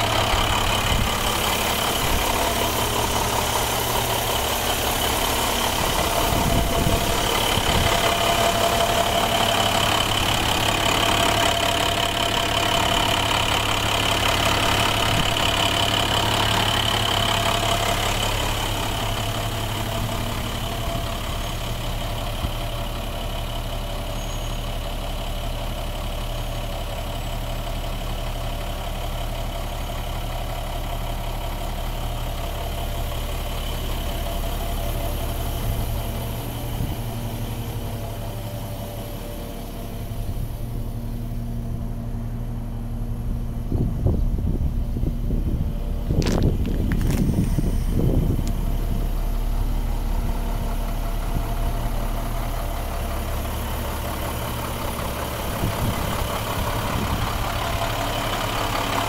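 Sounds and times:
high whine: 0:00.0 - 0:13.8
truck engine idling: 0:00.0 - 0:59.0.

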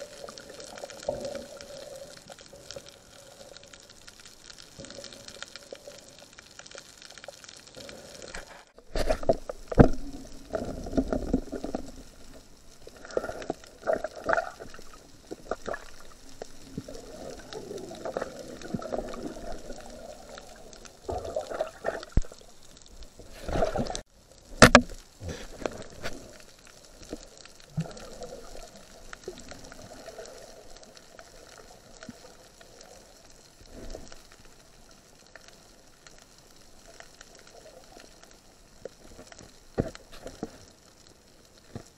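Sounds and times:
water swirling underwater: 0:00.0 - 0:41.6.

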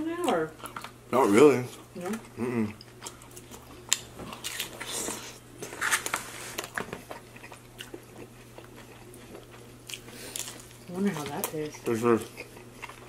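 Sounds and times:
biting and chewing food: 0:00.2 - 0:13.0.

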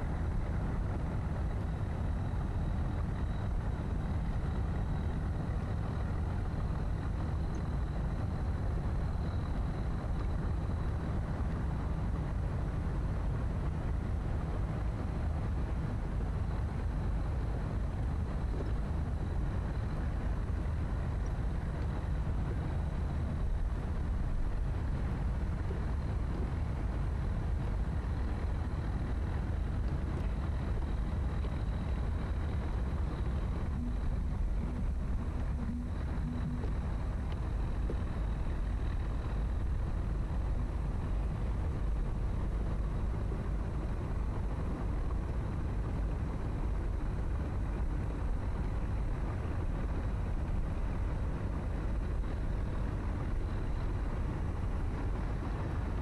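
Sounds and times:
low city ambience rumble: 0:00.0 - 0:56.0
faint high tone: 0:33.7 - 0:36.8.

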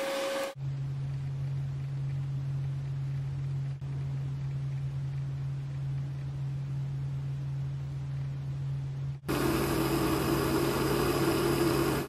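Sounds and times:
steady low hum: 0:00.4 - 0:12.0
micro torch hissing: 0:09.3 - 0:12.0.

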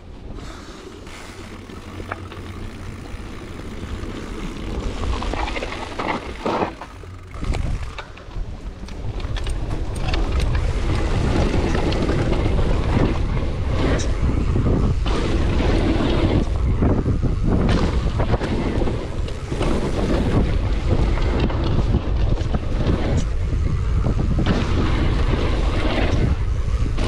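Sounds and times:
bike rattling: 0:00.0 - 0:27.0
wind buffeting microphone: 0:00.0 - 0:27.0
tyres crunching on gravel: 0:00.7 - 0:13.1.

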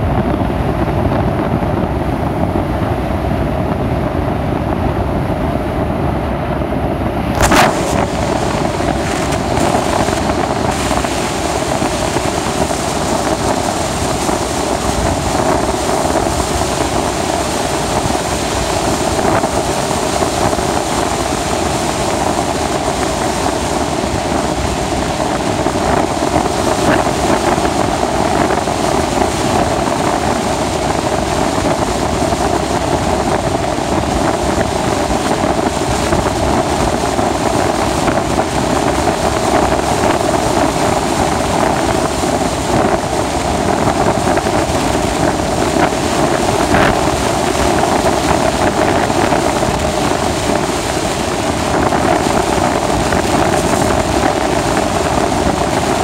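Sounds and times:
wind buffeting microphone: 0:00.0 - 0:56.0
bow wave breaking hiss: 0:07.2 - 0:31.3.

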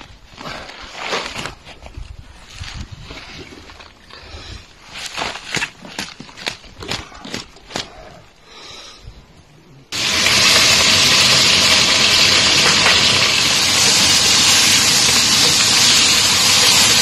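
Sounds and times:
beef sizzling in hot oil: 0:10.0 - 0:17.0.

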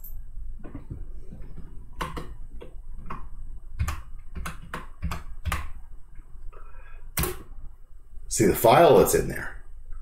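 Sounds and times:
keyboard keystrokes: 0:02.0 - 0:05.7.

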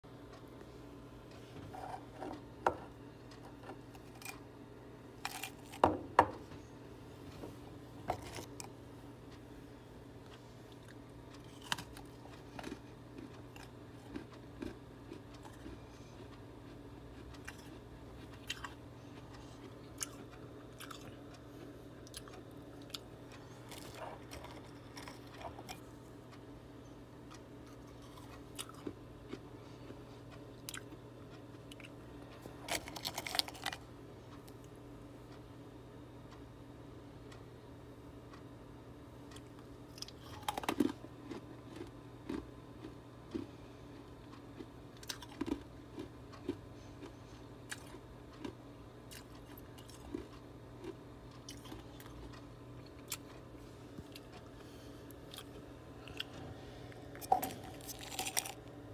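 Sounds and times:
faint steady low hum: 0:00.0 - 0:58.9
crunching of frost being chewed: 0:01.4 - 0:04.4, 0:05.2 - 0:05.8, 0:08.1 - 0:08.8, 0:10.3 - 0:26.0, 0:27.3 - 0:34.6, 0:39.3 - 0:58.7.

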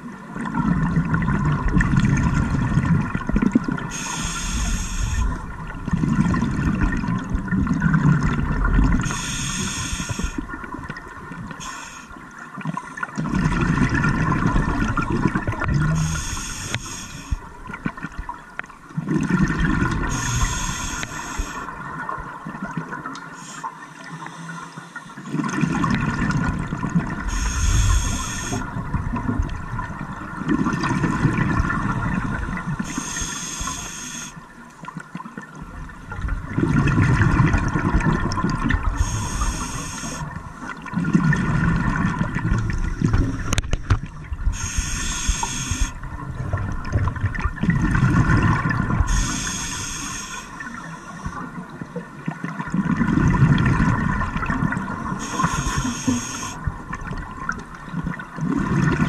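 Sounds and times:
exhale bubbling rumble: 0:00.0 - 0:11.6, 0:13.2 - 0:18.4, 0:19.0 - 0:23.0, 0:25.3 - 0:32.9, 0:35.6 - 0:49.6, 0:51.5 - 0:59.0
regulator inhale hiss: 0:03.9 - 0:05.4, 0:09.0 - 0:10.4, 0:11.5 - 0:12.2, 0:15.9 - 0:17.4, 0:20.1 - 0:21.8, 0:23.3 - 0:25.3, 0:27.2 - 0:28.7, 0:32.4 - 0:34.4, 0:38.9 - 0:40.4, 0:44.4 - 0:46.0, 0:49.0 - 0:51.6, 0:55.1 - 0:56.7.

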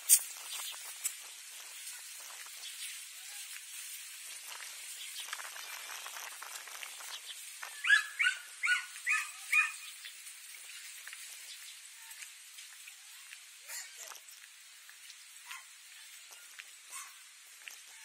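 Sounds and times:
faint outdoor hiss: 0:00.0 - 0:18.0
dog barking: 0:07.8 - 0:09.9, 0:15.4 - 0:15.7, 0:16.9 - 0:17.2.

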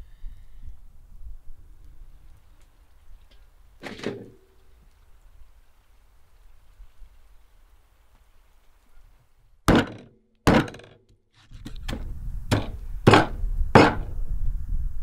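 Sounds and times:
meat cleaver thunking into wood: 0:09.7 - 0:10.9, 0:12.5 - 0:14.1.

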